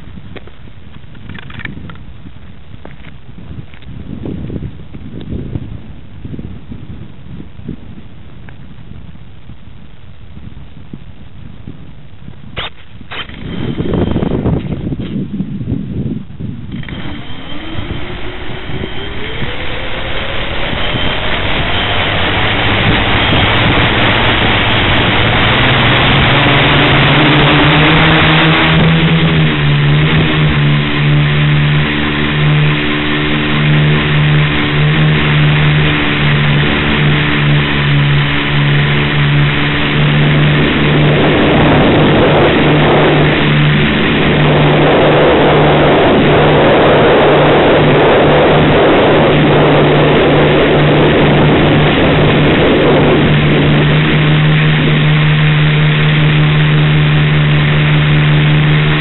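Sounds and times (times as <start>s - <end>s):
drone motors buzzing: 12.6s - 15.1s, 16.6s - 59.0s.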